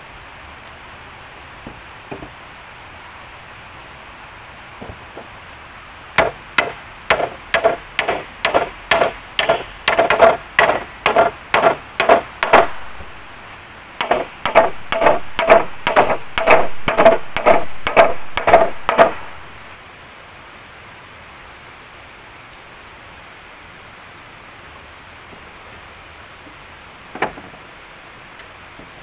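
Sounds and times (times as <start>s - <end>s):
hand tool striking wood: 6.2s - 12.7s, 14.0s - 19.4s.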